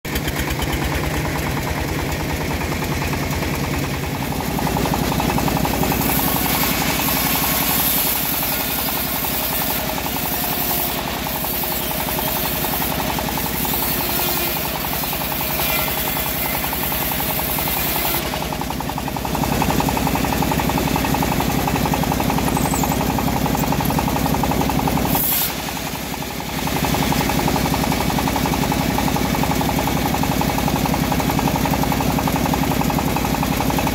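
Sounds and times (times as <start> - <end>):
bandsaw drive knocking: 0.1 - 25.6
band blade cutting log: 5.3 - 18.5, 25.1 - 25.8.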